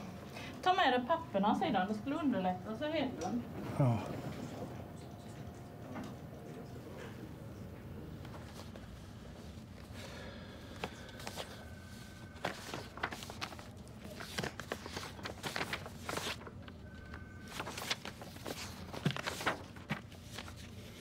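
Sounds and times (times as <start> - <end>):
paper sheets rustling: 8.1 - 21.0.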